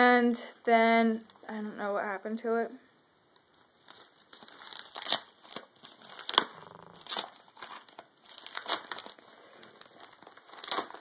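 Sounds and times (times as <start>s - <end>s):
packaging crinkling and rustling: 3.4s - 11.0s
sharp crackles: 3.5s - 11.0s.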